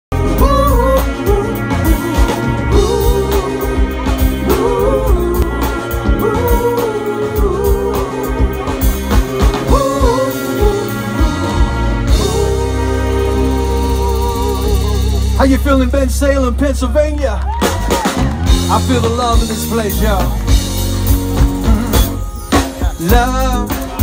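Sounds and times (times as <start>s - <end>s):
person singing: 0.1s - 15.4s, 21.4s - 24.0s
drum kit: 0.1s - 24.0s
guitars: 0.1s - 24.0s
keyboard chords: 0.1s - 24.0s.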